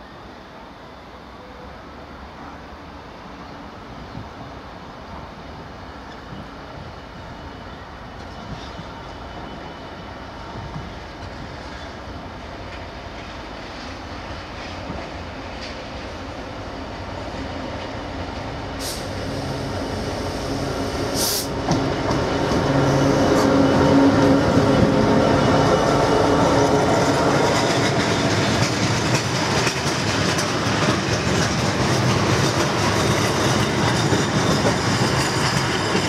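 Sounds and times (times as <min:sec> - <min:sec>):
diesel locomotive engine running: 0:12.2 - 0:36.0.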